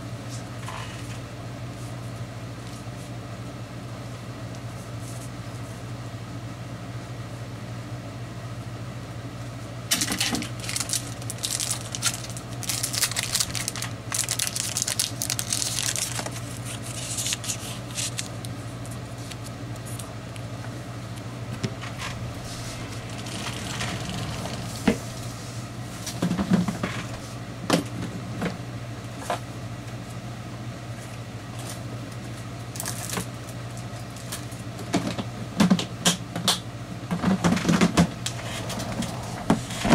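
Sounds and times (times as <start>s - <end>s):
paper rustling and sliding: 10.6s - 18.4s, 21.7s - 26.2s
low hum: 19.4s - 27.6s.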